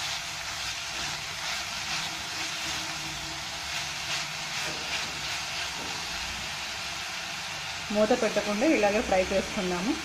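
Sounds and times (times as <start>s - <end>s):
wooden spatula scraping: 0.0s - 6.4s
vegetables sizzling in a pan: 0.0s - 10.0s.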